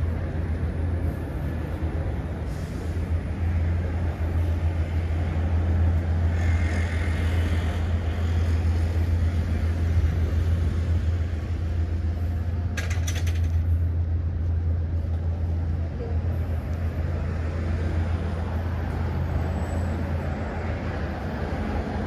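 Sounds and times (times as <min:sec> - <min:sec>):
road traffic rumble: 0:00.0 - 0:22.0
sharp clicks or rattles: 0:12.8 - 0:13.7.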